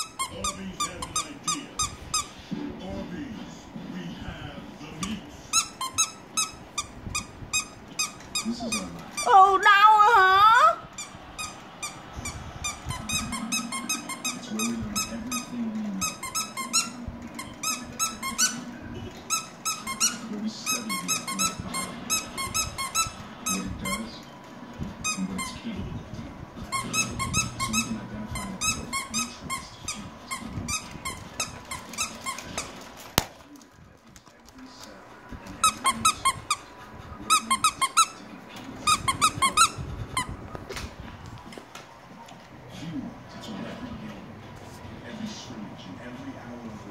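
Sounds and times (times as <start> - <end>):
squeaky dog toy squeaking: 0.0 - 2.4, 5.5 - 9.5, 11.0 - 18.6, 19.3 - 24.0, 26.7 - 32.7, 37.3 - 38.2, 38.8 - 40.3.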